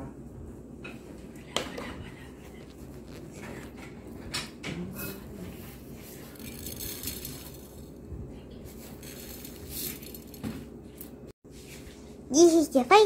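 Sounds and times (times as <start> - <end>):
sprinkles rattling in a jar: 6.0 - 8.0, 8.7 - 10.4.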